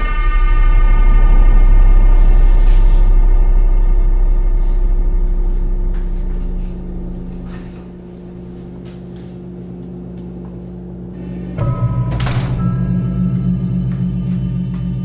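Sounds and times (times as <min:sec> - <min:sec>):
ominous film score drone: 0:00.0 - 0:15.0.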